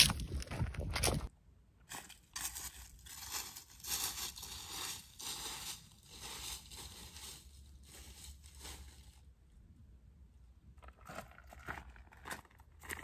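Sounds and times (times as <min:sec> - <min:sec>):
footsteps crunching through dry leaves: 0:01.9 - 0:09.2.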